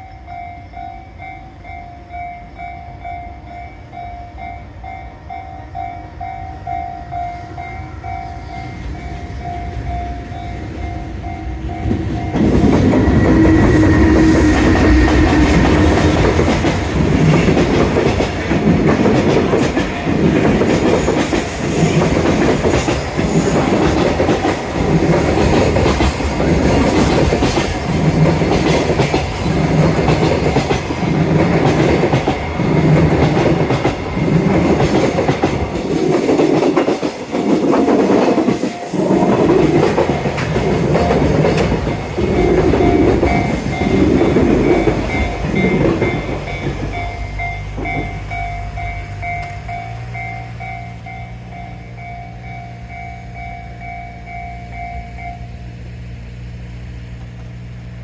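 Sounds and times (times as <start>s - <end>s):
train wheels clattering over rail joints: 11.8s - 48.4s.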